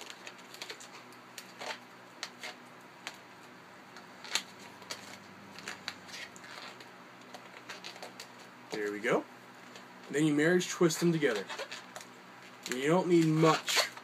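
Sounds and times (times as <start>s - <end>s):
rubber balloons squeaking: 0.4s - 2.6s, 4.1s - 9.0s, 10.9s - 14.0s.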